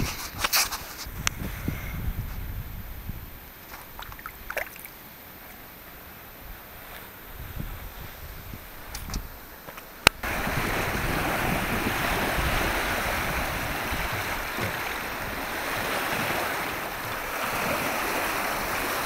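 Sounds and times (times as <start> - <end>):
wind buffeting microphone: 0.0 - 4.5, 7.2 - 9.4, 10.2 - 19.0
lake waves washing onto shore: 10.2 - 19.0.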